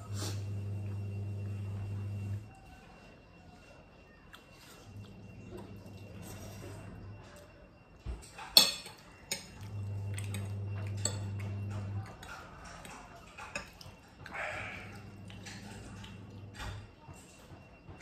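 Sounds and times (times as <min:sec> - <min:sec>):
low steady hum: 0:00.0 - 0:17.1
forks clinking on glass plates: 0:08.1 - 0:16.9.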